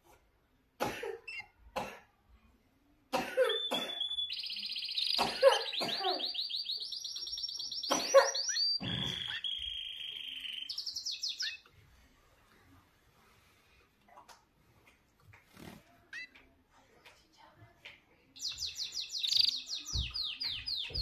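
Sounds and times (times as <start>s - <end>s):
canary singing trills: 3.5s - 11.7s, 16.0s - 16.4s, 18.4s - 21.0s.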